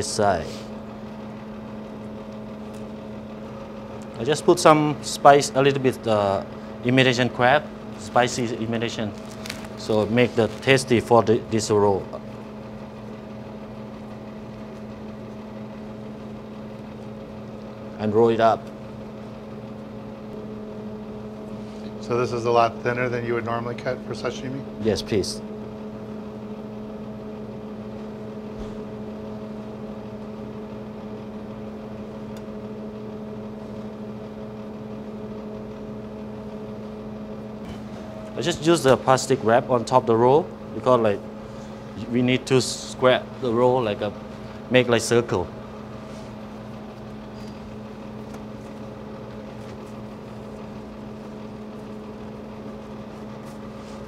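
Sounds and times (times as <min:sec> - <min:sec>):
machine hum: 0:00.0 - 0:54.0
bamboo mat rustling: 0:09.1 - 0:10.8.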